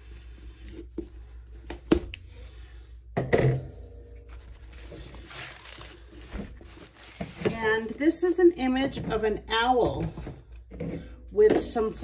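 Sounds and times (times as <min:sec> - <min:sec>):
canvas rustling: 0:04.4 - 0:08.2.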